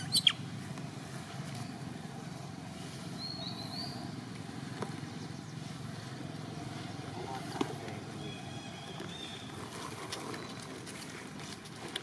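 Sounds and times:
faint high chirp: 0:00.0 - 0:00.4
distant engine rumble: 0:00.0 - 0:12.0.

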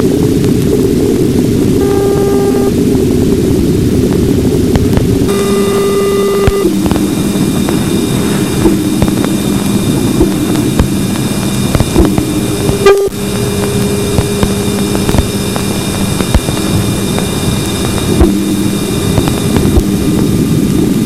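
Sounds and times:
low hiss and rumble: 0:00.0 - 0:21.0
steady interference tones: 0:00.0 - 0:21.0
scattered clicks: 0:04.7 - 0:21.0.

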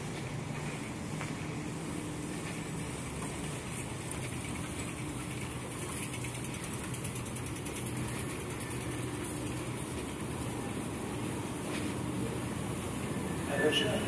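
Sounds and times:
steady mechanical hum: 0:00.0 - 0:14.0
faint fast ticking: 0:03.8 - 0:10.6.

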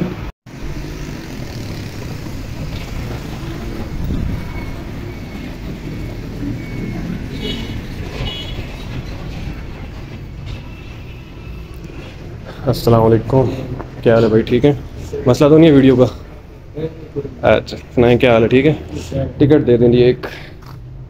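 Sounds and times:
outdoor background rumble: 0:00.5 - 0:11.2.

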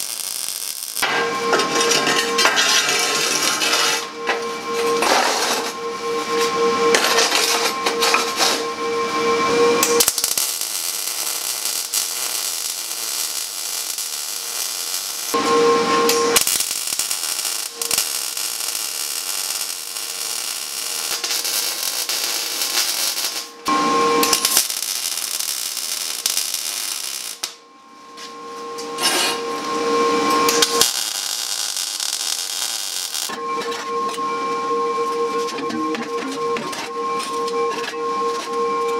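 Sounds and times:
welder crackling sizzle: 0:00.0 - 0:05.8, 0:09.6 - 0:27.6, 0:29.0 - 0:33.4.

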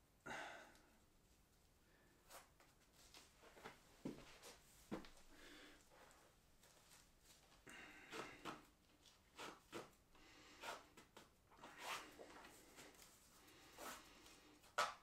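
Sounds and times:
laces rustling and swishing: 0:11.5 - 0:15.0.

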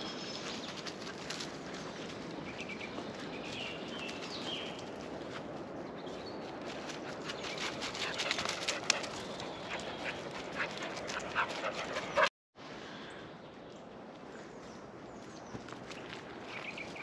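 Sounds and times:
dogs running over dry leaves: 0:00.2 - 0:12.2.

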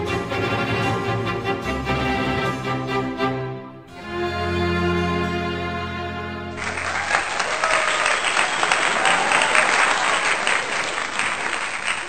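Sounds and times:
background music: 0:00.0 - 0:07.4
crowd applauding: 0:06.5 - 0:12.0.

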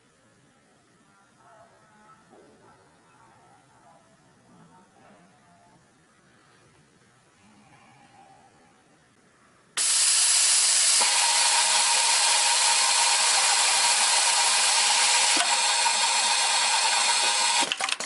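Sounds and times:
sewing machine running fast: 0:09.8 - 0:18.0.

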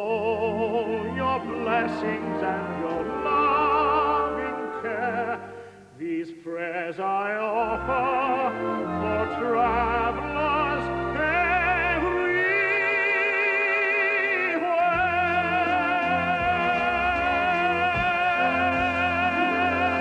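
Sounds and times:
instrumental accompaniment: 0:00.0 - 0:06.0, 0:07.6 - 0:20.0
man singing operatically: 0:00.0 - 0:20.0
singer's breath: 0:05.5 - 0:06.0.

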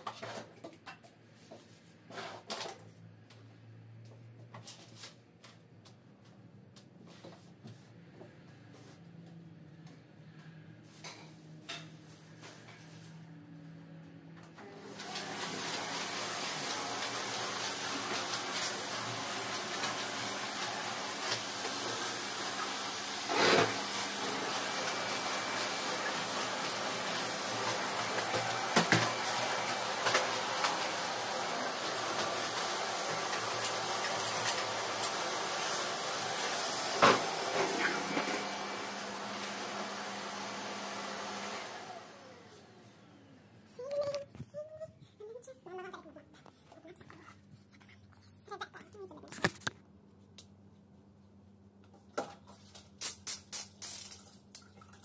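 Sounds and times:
vacuum cleaner running: 0:14.6 - 0:43.6.

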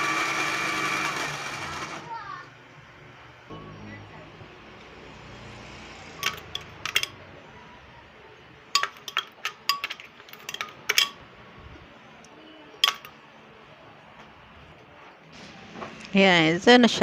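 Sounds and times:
metal spoon tapping glass: 0:06.2 - 0:07.1, 0:08.8 - 0:11.2, 0:12.8 - 0:13.1.

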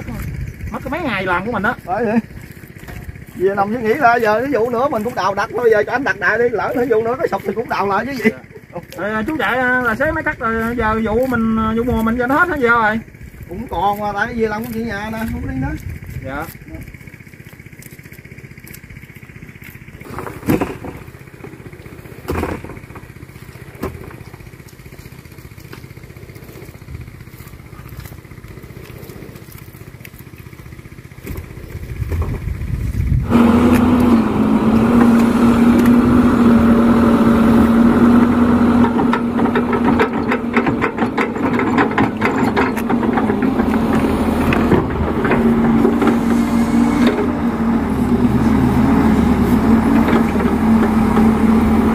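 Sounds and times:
excavator diesel engine: 0:00.0 - 0:51.9.

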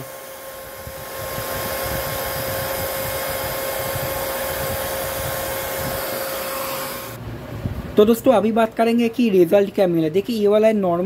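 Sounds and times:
cooling fan whining: 0:00.0 - 0:10.5.

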